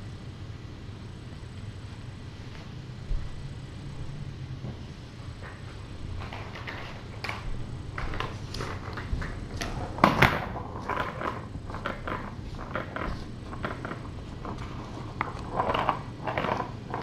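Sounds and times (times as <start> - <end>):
steady low hum: 0.0 - 17.0
plastic toy clattering on wood floor: 6.2 - 7.4, 8.0 - 17.0.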